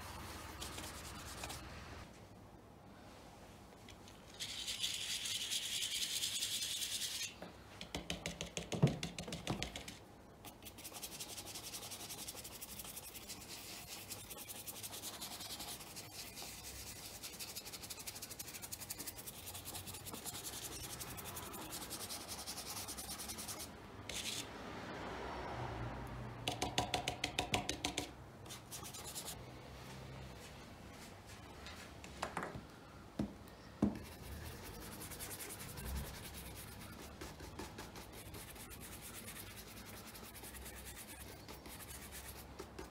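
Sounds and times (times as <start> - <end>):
shoe brush scratchy rubbing: 0.0 - 1.8, 4.4 - 7.3, 10.5 - 24.5, 28.5 - 29.4, 34.0 - 42.9.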